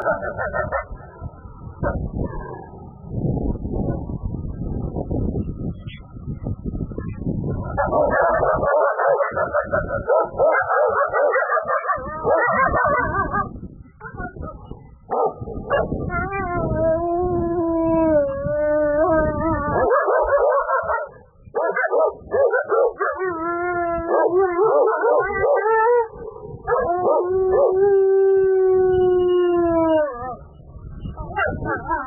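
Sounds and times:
wolf howling: 7.7s - 14.7s, 15.8s - 21.1s, 21.8s - 32.0s.

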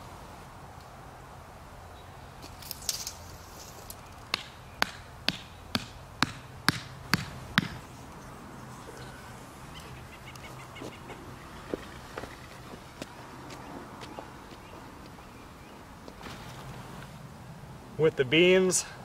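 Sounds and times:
stake hammered into soil: 4.3s - 7.8s.

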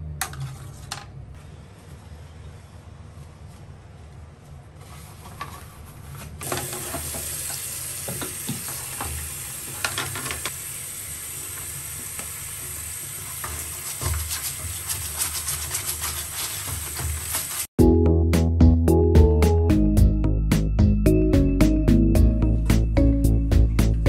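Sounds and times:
tap water running: 6.4s - 17.7s.

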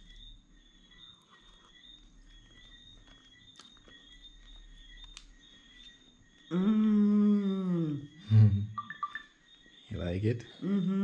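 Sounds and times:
insects chirring: 0.0s - 11.0s
person humming mmm: 6.5s - 8.8s, 10.6s - 11.0s.

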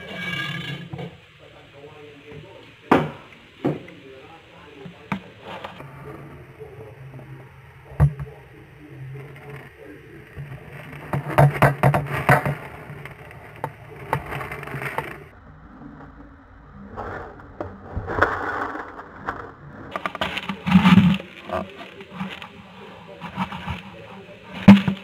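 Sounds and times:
scraping and rustling: 0.0s - 1.3s, 4.8s - 16.2s, 16.8s - 25.0s.

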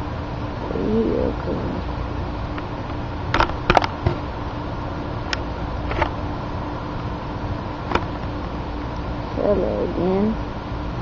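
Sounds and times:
steady low hum: 0.0s - 11.0s
phone handling clicks and knocks: 3.4s - 4.2s.

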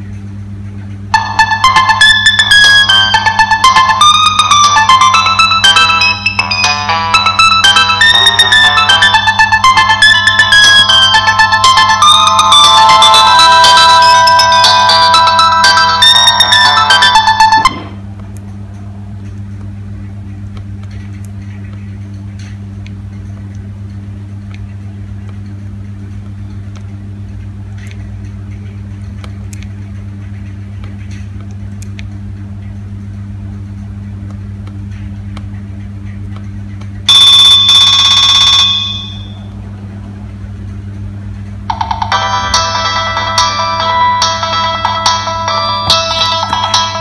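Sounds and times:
low steady hum: 0.0s - 47.0s
loud electronic alarm tone: 1.1s - 18.1s, 37.1s - 39.5s
phone ringtone: 1.2s - 18.0s, 37.1s - 39.5s, 41.7s - 47.0s.

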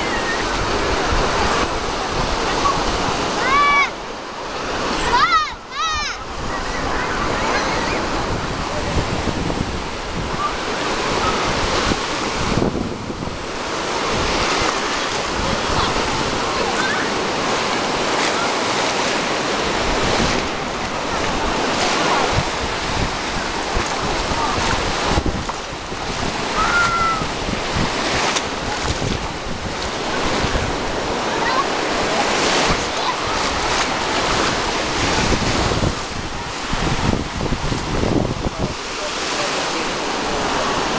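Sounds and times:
faint crowd voices: 0.0s - 12.0s, 14.5s - 27.3s, 38.2s - 40.9s
waves washing over sand: 0.0s - 40.9s
wind on microphone: 0.0s - 40.9s.

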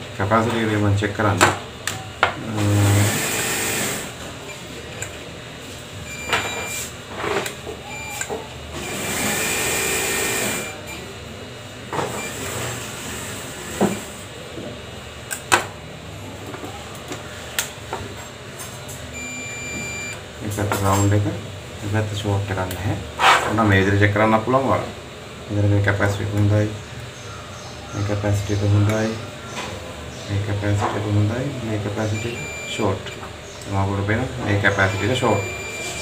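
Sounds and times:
multimeter beeping: 6.0s - 6.9s, 7.8s - 11.0s, 19.1s - 20.2s, 32.1s - 33.2s, 34.7s - 36.0s.

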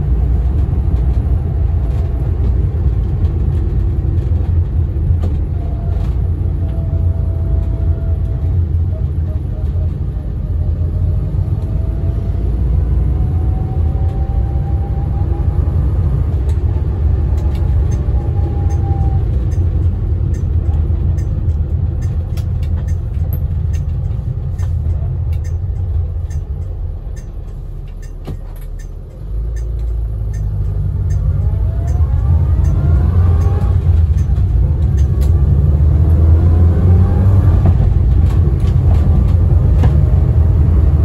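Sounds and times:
car engine and road rumble: 0.0s - 41.0s
gearbox whine: 4.8s - 41.0s
light regular ticks: 17.4s - 35.4s.

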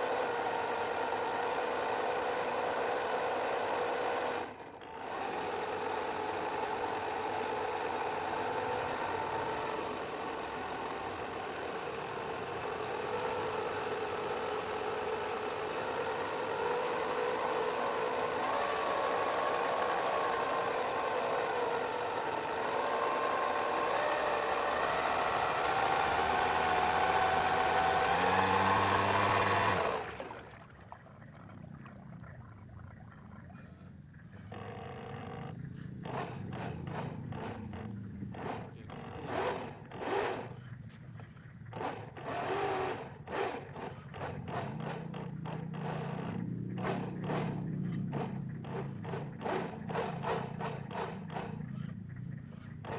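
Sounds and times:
electric motor whine: 0.0s - 30.6s.

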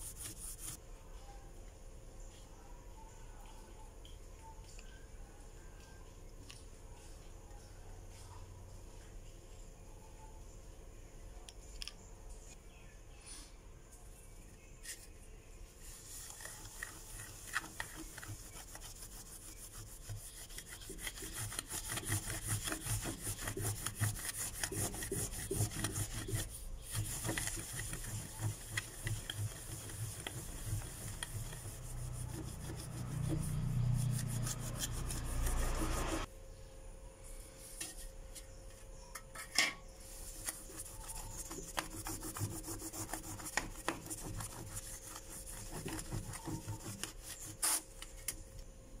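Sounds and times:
cloth rubbing on brass: 15.8s - 36.3s.

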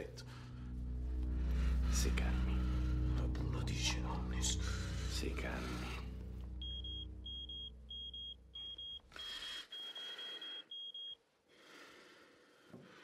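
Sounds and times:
electronic alert beeping: 6.6s - 11.2s.

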